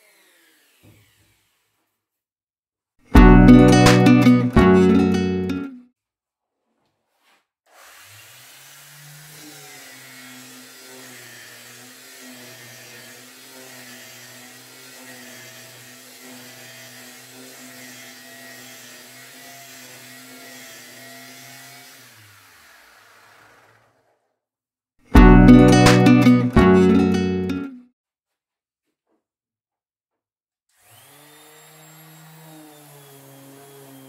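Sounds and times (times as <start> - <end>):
orbital sander sanding wood: 7.7 - 23.7, 30.8 - 34.0.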